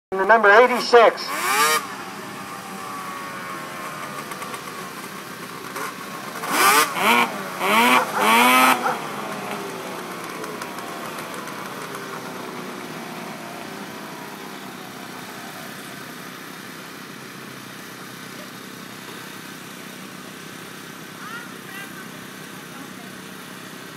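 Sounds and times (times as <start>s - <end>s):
snowmobile engine drone: 0.1s - 23.9s
snowmobile engine revving: 0.2s - 23.9s.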